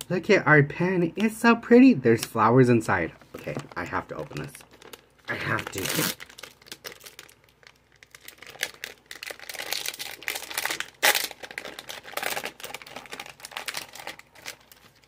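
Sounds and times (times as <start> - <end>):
plastic packaging crinkling and tearing: 3.2 - 15.0.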